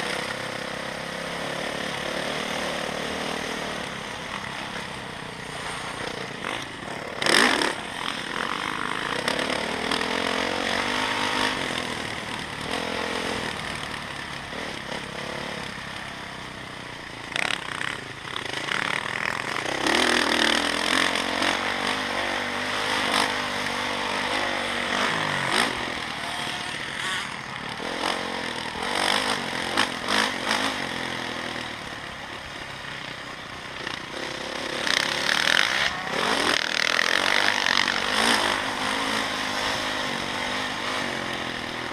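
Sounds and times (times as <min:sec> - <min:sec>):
motocross bike engine revving: 0:00.0 - 0:41.9.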